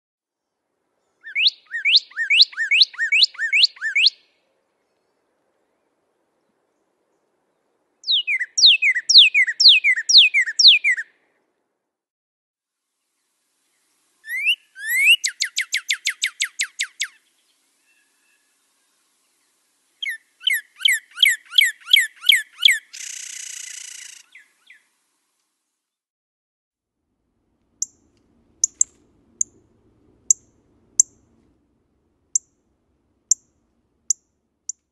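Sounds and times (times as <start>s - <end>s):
bird singing whistled phrases: 1.2s - 4.2s, 8.0s - 11.1s, 14.2s - 17.2s, 20.0s - 24.8s.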